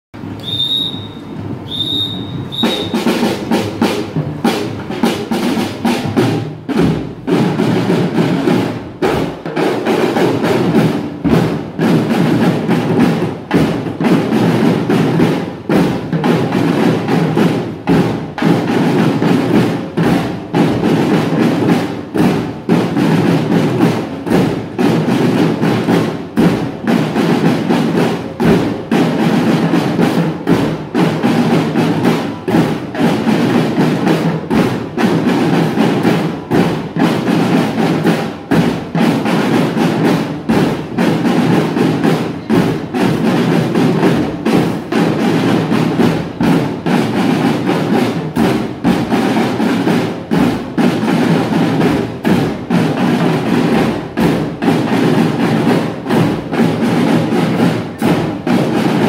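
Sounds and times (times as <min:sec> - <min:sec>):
drum band marching beat: 0:00.2 - 0:59.0
short high tones: 0:00.4 - 0:03.0.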